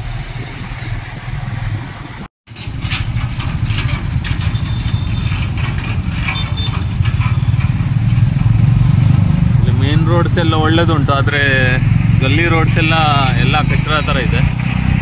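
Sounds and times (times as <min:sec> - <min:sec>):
motorcycle engine running: 0:01.0 - 0:15.0
carriage rattling and knocking: 0:02.5 - 0:08.7.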